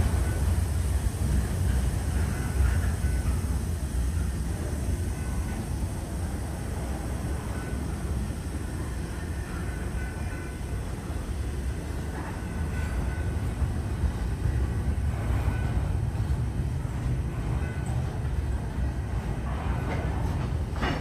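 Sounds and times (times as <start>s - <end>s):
faint high wheel squeals: 7.3s - 21.0s
freight car wheels rumbling on rails: 11.1s - 21.0s.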